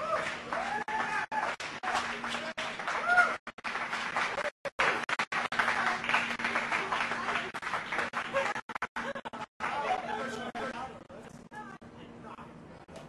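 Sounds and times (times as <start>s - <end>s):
crowd applauding: 0.0s - 10.8s.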